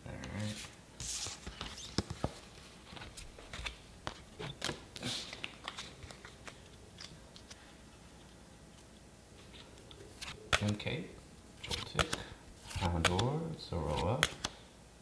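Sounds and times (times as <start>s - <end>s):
soft rustling of cards: 0.1s - 14.7s
cards clicking and slapping on table: 10.2s - 10.8s, 11.6s - 14.6s.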